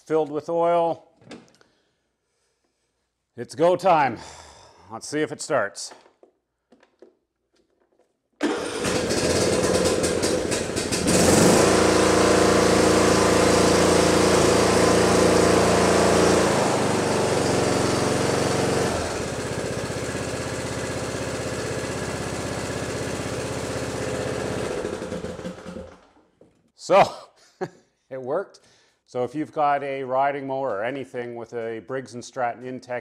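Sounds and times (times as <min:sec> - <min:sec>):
mower engine running: 0:08.4 - 0:26.1
engine cranking on starter: 0:08.4 - 0:26.2.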